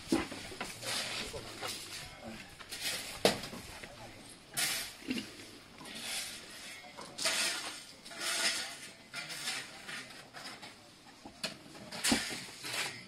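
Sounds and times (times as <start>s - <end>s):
trowel scraping mortar: 4.6s - 10.6s.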